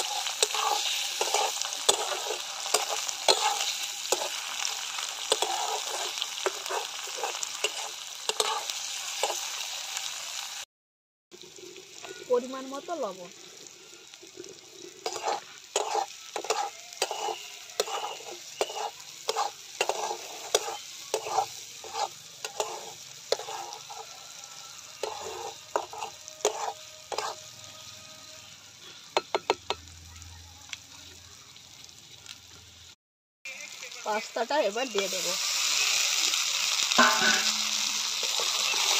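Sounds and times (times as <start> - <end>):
metal spatula scraping a pan: 0.0 - 9.7, 15.0 - 29.5, 36.8 - 38.9
frying sizzle: 0.0 - 10.7, 11.3 - 38.9.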